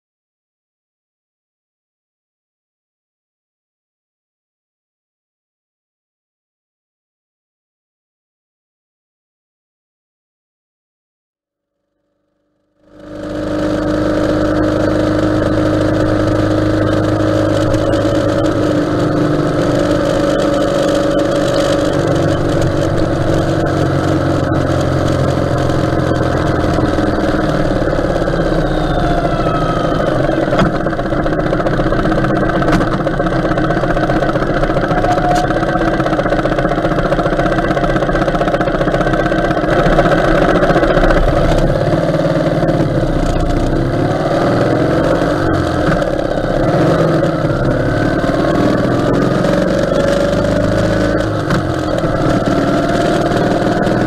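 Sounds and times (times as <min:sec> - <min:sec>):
motorcycle engine running: 0:12.8 - 0:54.0.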